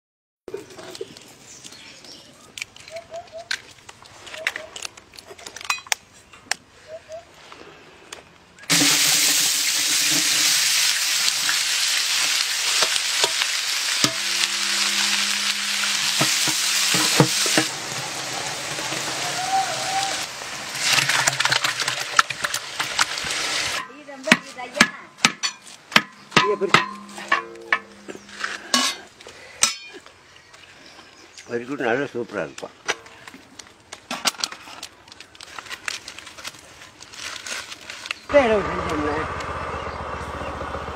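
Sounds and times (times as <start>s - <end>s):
metal ladle scraping pot: 8.7s - 10.6s, 12.6s - 18.0s, 26.7s - 29.9s
onions sizzling in oil: 8.7s - 21.0s.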